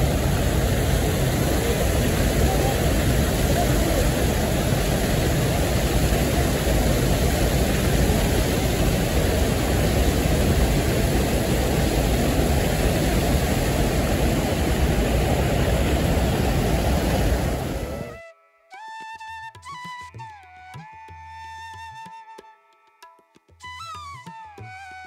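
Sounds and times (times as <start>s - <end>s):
river water rushing: 0.0s - 18.2s.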